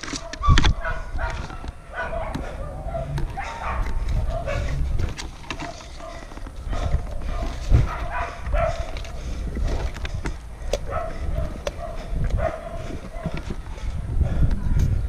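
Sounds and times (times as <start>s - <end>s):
camera handling rumble: 0.0s - 13.8s
dog barking: 0.1s - 4.8s, 5.6s - 9.2s, 10.8s - 13.5s.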